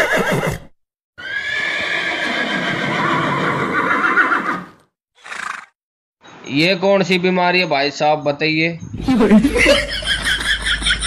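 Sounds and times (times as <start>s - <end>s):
high horse-like whinny: 0.0s - 5.8s.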